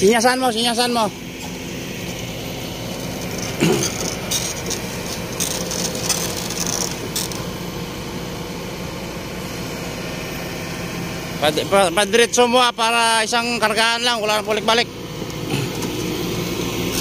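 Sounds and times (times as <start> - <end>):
excavator diesel engine running: 0.0 - 17.0
crawler tracks scraping and clanking: 3.0 - 7.5.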